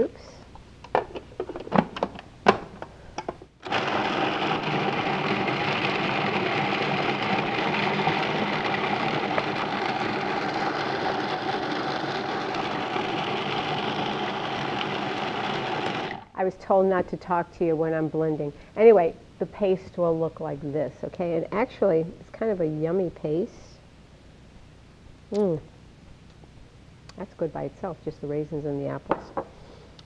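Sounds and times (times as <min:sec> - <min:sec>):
food processor chopping: 0:03.6 - 0:16.2.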